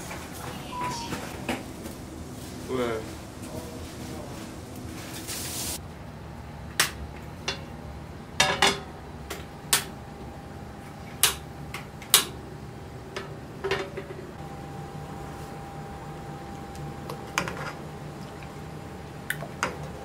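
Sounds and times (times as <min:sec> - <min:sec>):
faint steady hum: 0:05.8 - 0:20.0
utensils knocking against pots: 0:08.4 - 0:08.9.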